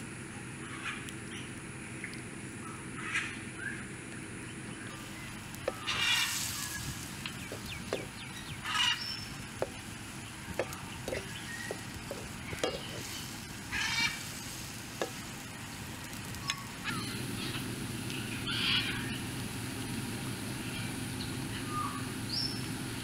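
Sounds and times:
utensil knocking on a wok: 5.7s - 6.2s, 7.5s - 8.2s, 9.6s - 9.9s, 10.5s - 13.2s, 15.0s - 15.4s.

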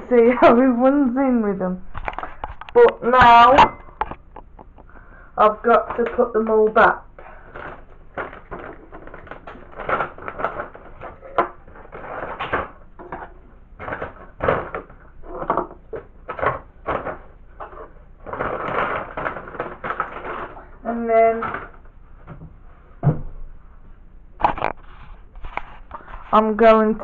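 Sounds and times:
plastic packet crinkling: 7.0s - 12.9s, 15.9s - 20.8s.

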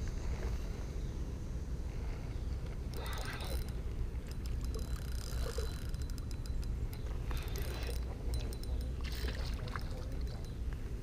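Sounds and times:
steady low rumble: 0.0s - 11.0s
fishing reel ticking and clicking: 2.8s - 10.7s.

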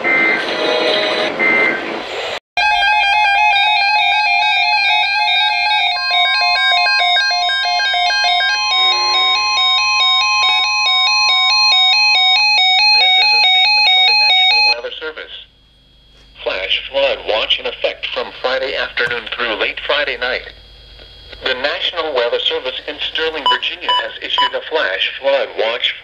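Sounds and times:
two-pitch electronic alert beeping: 23.0s - 24.7s.

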